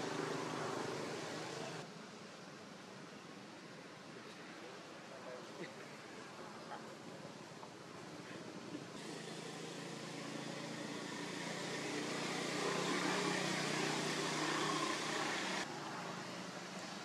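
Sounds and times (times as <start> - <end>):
vehicle engine hum: 0.0 - 1.8, 9.0 - 17.0
road noise: 0.0 - 17.0.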